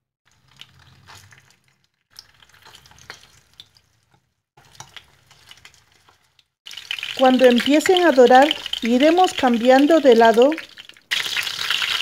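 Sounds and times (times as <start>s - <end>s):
chicken sizzling in oil: 4.6s - 12.0s.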